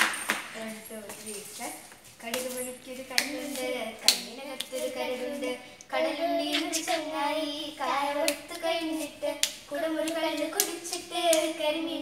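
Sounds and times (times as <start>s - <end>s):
girl singing a slow tune: 2.2s - 12.0s
sharp hand claps: 9.4s - 11.6s.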